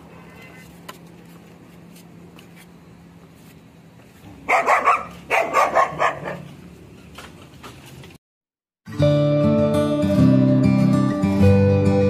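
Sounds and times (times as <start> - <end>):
dog barking: 4.4 - 6.5.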